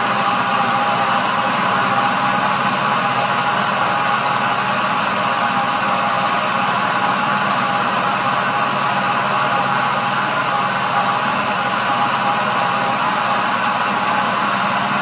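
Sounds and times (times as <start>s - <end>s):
blender motor whirring: 0.0s - 15.0s.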